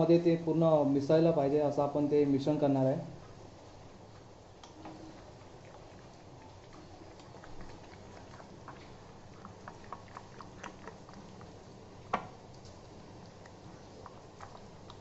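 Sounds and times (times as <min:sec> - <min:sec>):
spatula stirring wet marinade: 0:03.2 - 0:15.0.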